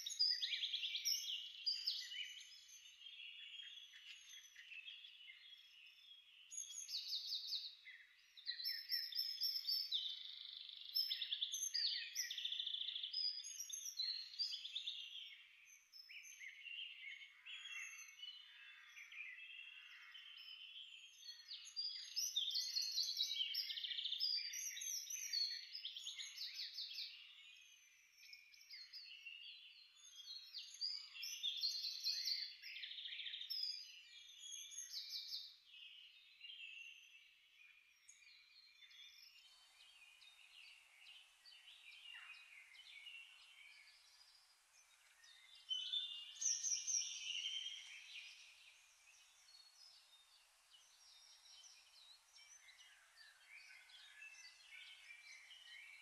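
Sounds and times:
small birds chirping: 0:00.0 - 0:56.0
faint steady hiss: 0:37.3 - 0:56.0.

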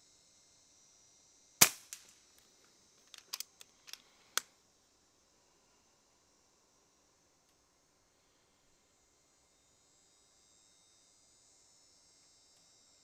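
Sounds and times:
air rifle firing crack: 0:01.6 - 0:02.1
rifle action clicking: 0:03.1 - 0:04.0.

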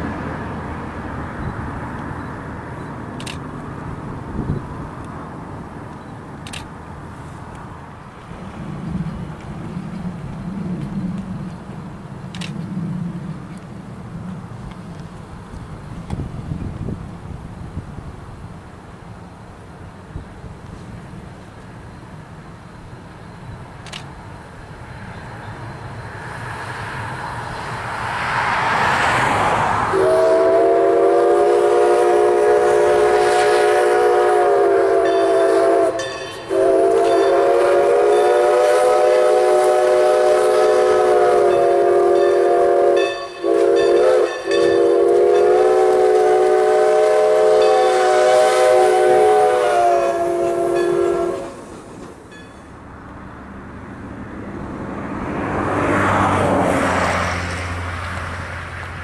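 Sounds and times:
steam locomotive running: 0:00.0 - 0:59.0
steam whistle blasts: 0:29.9 - 0:51.7.

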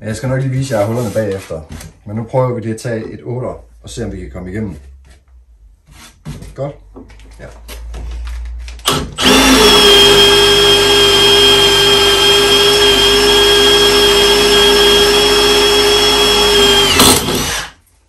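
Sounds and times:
power drill boring through iron: 0:08.9 - 0:17.8.

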